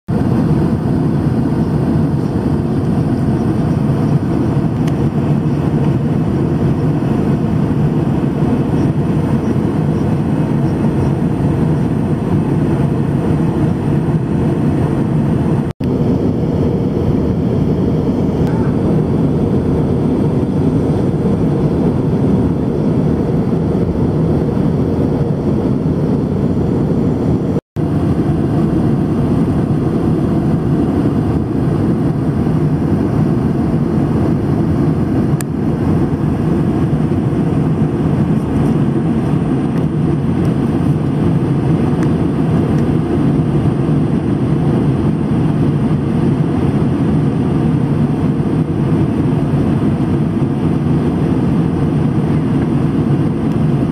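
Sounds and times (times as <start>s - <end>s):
airliner cabin noise: 0.1s - 53.9s.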